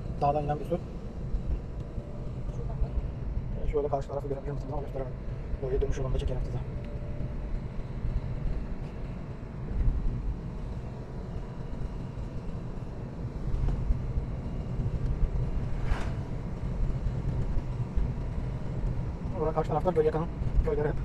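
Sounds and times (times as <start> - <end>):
car engine and tyre rumble: 0.0 - 21.0.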